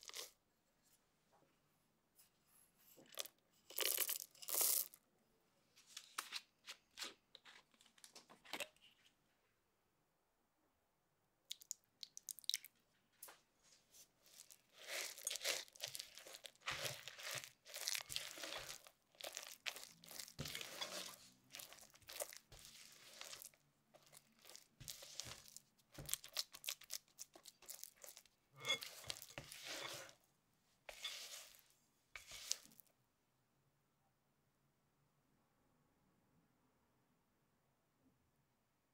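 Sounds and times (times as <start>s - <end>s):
spatula stirring batter in bowl: 13.9s - 30.2s, 30.8s - 32.8s.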